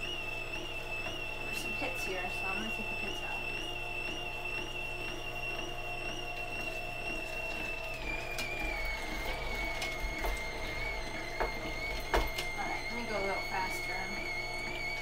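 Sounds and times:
juicer motor whine: 0.0 - 15.0
gears crushing fruit clicks: 3.4 - 15.0.

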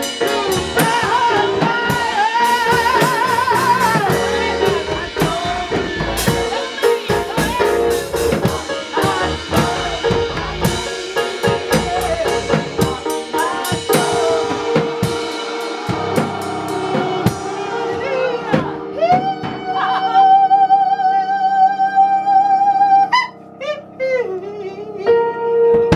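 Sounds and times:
drums: 0.0 - 20.2
gospel choir singing: 0.0 - 23.2
keyboard: 0.0 - 25.9.

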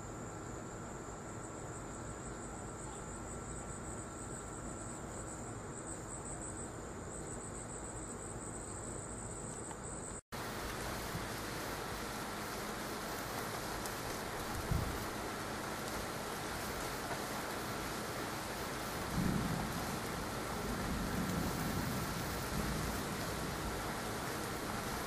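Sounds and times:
insects chirring: 0.0 - 25.0
rain falling: 10.4 - 25.0.

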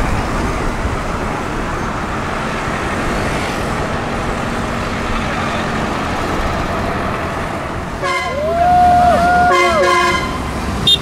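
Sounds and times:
diesel tractor engines running: 0.0 - 11.0.

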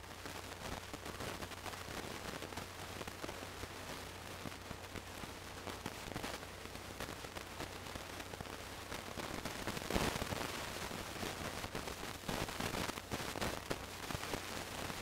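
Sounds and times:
crackling static hiss: 0.0 - 15.0.

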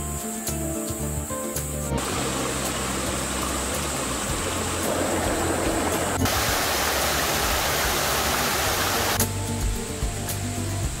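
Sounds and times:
stream trickling over rocks: 0.2 - 11.0
small waterfall pouring into pool: 2.0 - 9.3.

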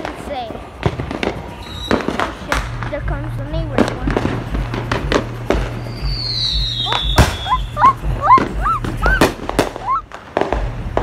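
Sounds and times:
fireworks bangs and crackles: 0.0 - 11.0
high falling whistle: 1.6 - 2.1, 5.7 - 10.1.

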